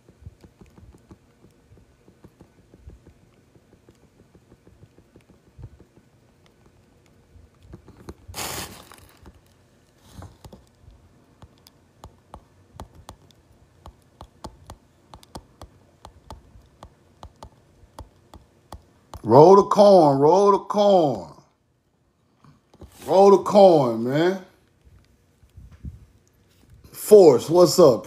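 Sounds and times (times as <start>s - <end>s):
small clicks and taps: 0.0s - 8.3s, 9.0s - 19.3s
rustling noise: 7.4s - 11.0s, 22.8s - 23.6s, 24.8s - 26.9s.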